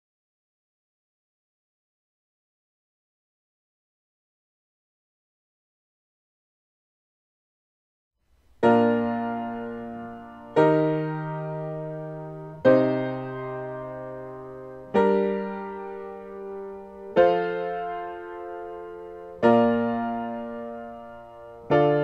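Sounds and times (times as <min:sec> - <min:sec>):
piano block chords: 0:08.6 - 0:22.0.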